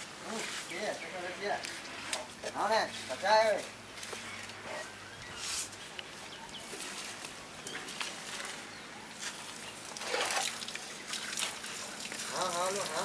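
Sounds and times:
hose water splashing on mud: 6.6 - 13.0.

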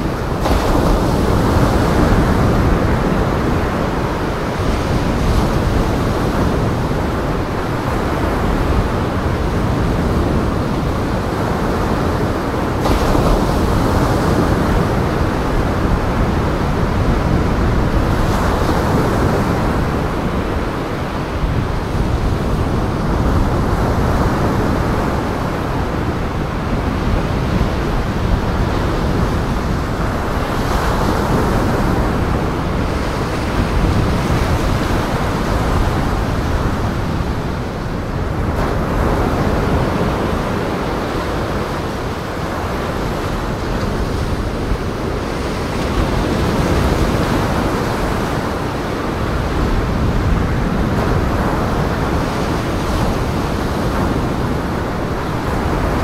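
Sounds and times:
wind: 0.0 - 56.0.

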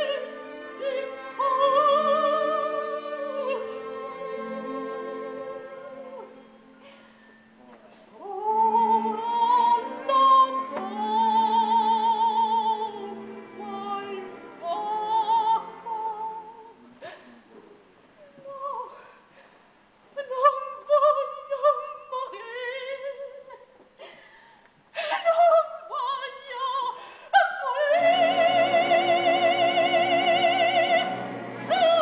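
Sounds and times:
operatic soprano singing: 0.0 - 6.7, 8.2 - 16.8, 18.4 - 19.0, 20.2 - 23.7, 25.0 - 32.0.

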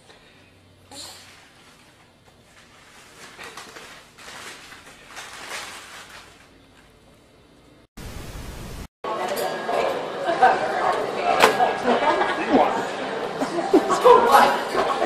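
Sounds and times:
faint rustling and handling: 1.2 - 6.9
loud white-noise static: 8.0 - 8.9.

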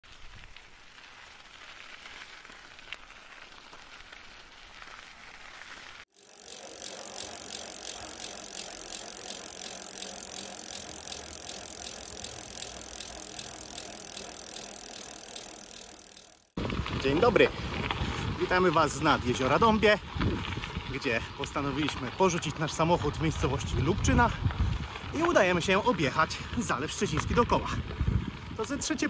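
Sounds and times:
bicycle riding hiss: 0.1 - 16.6
freewheel ticking: 6.1 - 16.6.

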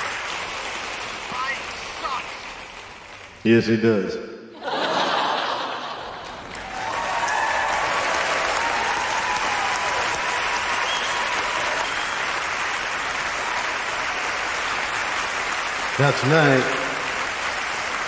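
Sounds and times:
audience applauding: 0.0 - 3.4, 6.0 - 18.0
people cheering: 4.6 - 18.0.

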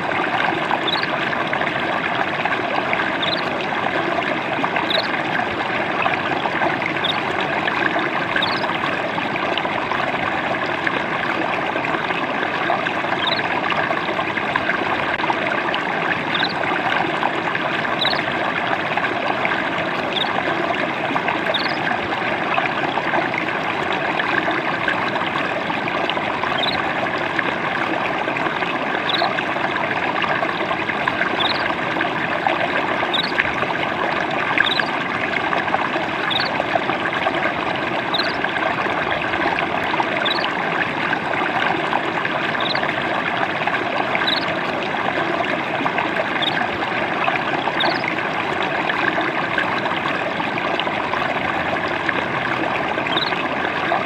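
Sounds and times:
stream trickling and splashing: 0.0 - 54.0
faint high chirps: 0.8 - 1.1, 3.2 - 3.4, 21.5 - 21.8, 33.1 - 33.4, 34.6 - 34.9, 36.3 - 36.5, 42.6 - 42.8, 44.2 - 44.5, 53.1 - 53.4.

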